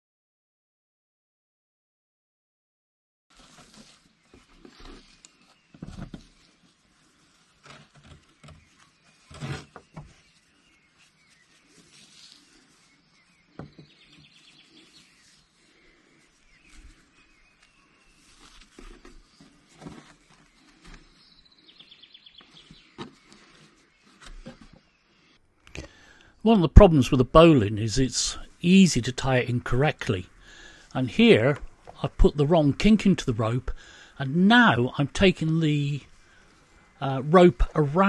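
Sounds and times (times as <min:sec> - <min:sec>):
rope rustling: 0:03.3 - 0:21.7, 0:22.4 - 0:24.8.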